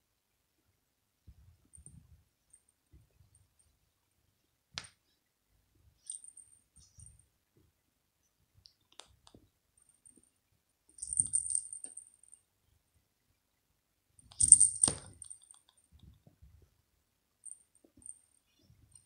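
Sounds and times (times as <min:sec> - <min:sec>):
toy ball bell jingling: 0:11.0 - 0:12.0, 0:14.3 - 0:15.4.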